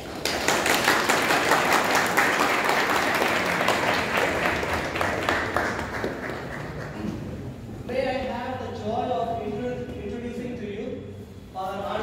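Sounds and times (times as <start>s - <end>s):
crowd applauding: 0.0s - 7.2s.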